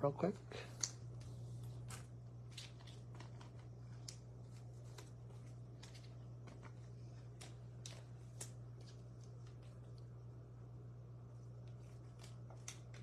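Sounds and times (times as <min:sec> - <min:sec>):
steady low hum: 0:00.0 - 0:13.0
trading cards rustling in sleeves: 0:00.7 - 0:09.9.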